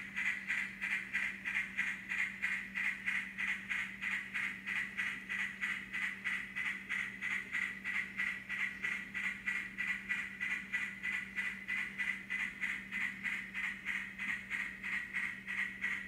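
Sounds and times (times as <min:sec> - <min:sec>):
low constant hum: 0:00.0 - 0:16.0
model train rhythmic pulsing: 0:00.0 - 0:16.0.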